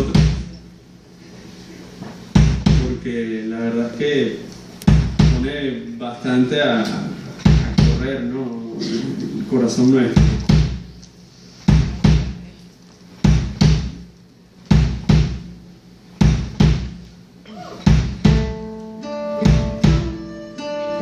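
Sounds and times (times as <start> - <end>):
bass drum double beat: 0.0 - 0.6, 2.3 - 3.1, 4.8 - 5.6, 7.4 - 8.2, 10.1 - 11.0, 11.6 - 12.5, 13.2 - 14.1, 14.7 - 17.1, 17.8 - 18.7, 19.4 - 20.3
acoustic guitar picked notes: 17.5 - 21.0.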